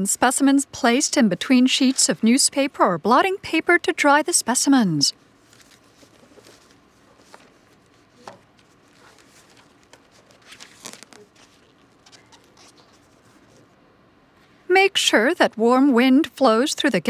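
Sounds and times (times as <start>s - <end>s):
strap rustling and scraping: 5.3s - 13.8s.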